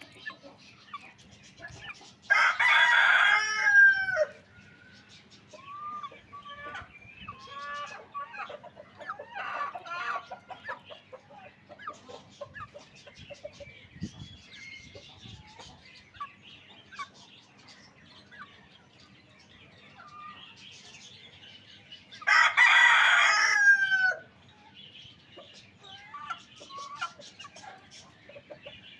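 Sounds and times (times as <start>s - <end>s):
chickens clucking: 0.0s - 28.9s
rooster crowing: 2.3s - 4.4s, 22.2s - 24.3s.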